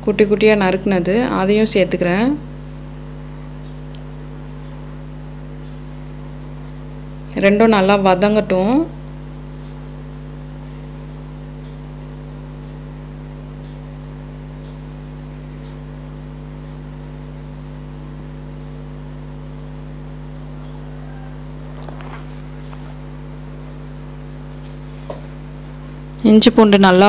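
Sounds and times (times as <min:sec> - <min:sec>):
low hum: 0:00.0 - 0:27.0.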